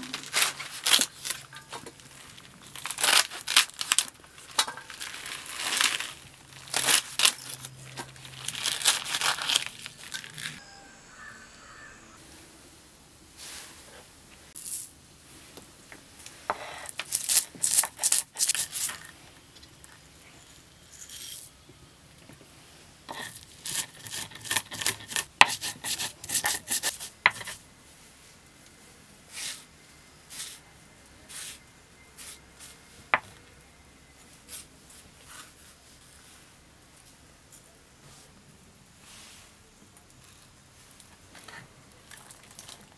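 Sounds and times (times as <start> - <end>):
seeds crushed on grinding stone: 0.1 - 10.6, 16.8 - 19.1, 23.1 - 27.6
leafy greens cut with blade: 23.2 - 27.5.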